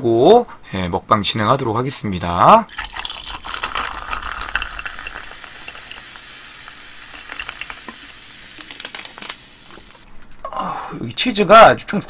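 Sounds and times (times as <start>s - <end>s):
cola fizzing: 2.7s - 10.1s.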